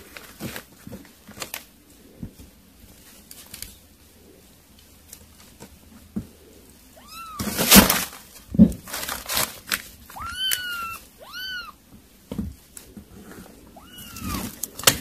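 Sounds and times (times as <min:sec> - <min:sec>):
rustling and scuffling: 0:00.0 - 0:15.0
kittens mewing: 0:06.6 - 0:07.9, 0:10.0 - 0:11.9, 0:13.4 - 0:15.0.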